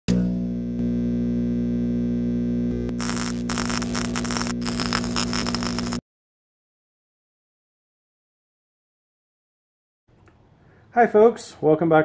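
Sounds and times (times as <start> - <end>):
electrical mains hum: 0.1 - 6.0
electric arc crackling: 2.0 - 6.0.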